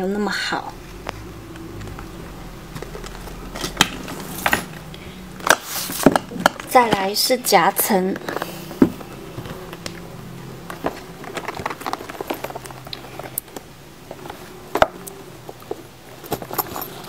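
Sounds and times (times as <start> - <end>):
faint low hum: 0.0 - 17.0
leather handbag rustling: 8.2 - 17.0.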